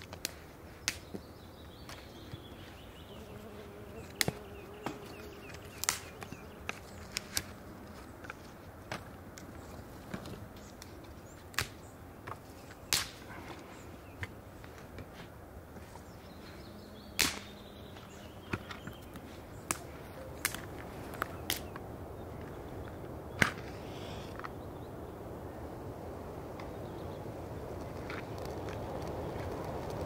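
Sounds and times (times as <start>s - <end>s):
dry twigs snapping: 0.0s - 1.2s, 5.4s - 9.6s, 10.7s - 11.8s, 12.9s - 13.3s, 17.2s - 21.9s, 27.6s - 30.0s.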